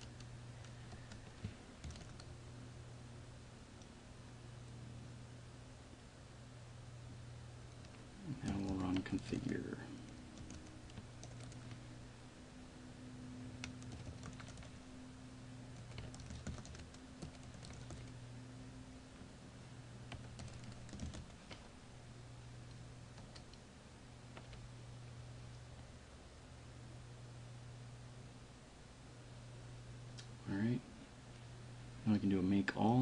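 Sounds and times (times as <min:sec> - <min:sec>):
keyboard typing: 0:00.0 - 0:02.3, 0:07.7 - 0:11.8, 0:13.5 - 0:14.8, 0:15.7 - 0:18.2, 0:20.1 - 0:21.7, 0:22.7 - 0:23.6
steady low hum: 0:00.0 - 0:33.0.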